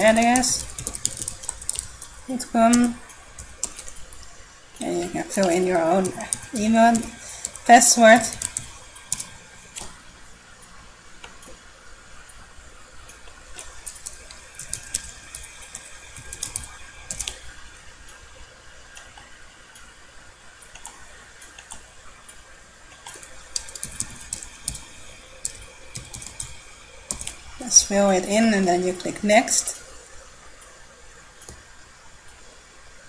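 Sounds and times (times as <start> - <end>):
computer keyboard typing: 0.0 - 4.2, 4.8 - 10.0, 13.6 - 17.5, 23.0 - 27.8.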